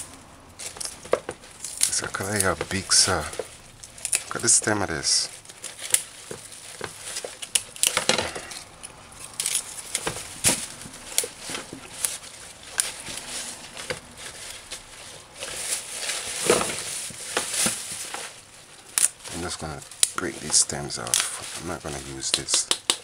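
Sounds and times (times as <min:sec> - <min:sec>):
leaves rustling: 0:00.0 - 0:23.0
plant stems snapping: 0:00.6 - 0:04.8, 0:05.4 - 0:14.9, 0:18.9 - 0:23.0.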